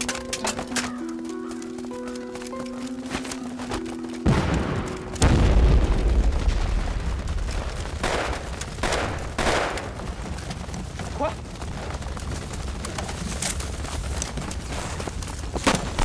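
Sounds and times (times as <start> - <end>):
explosions: 4.2 - 10.2.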